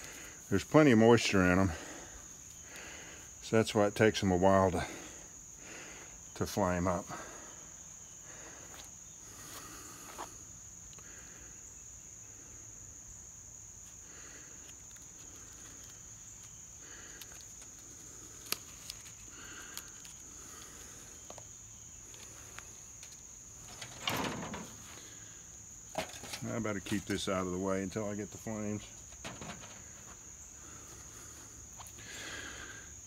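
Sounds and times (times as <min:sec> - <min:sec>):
insects droning: 0:00.0 - 0:33.0
rustling dry pine needles: 0:14.6 - 0:21.4.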